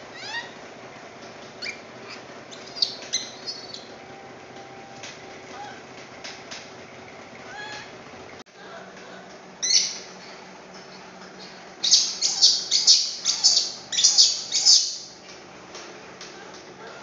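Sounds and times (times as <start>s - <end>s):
baby monkey screaming: 0.0s - 0.6s, 1.6s - 3.9s, 11.8s - 15.1s.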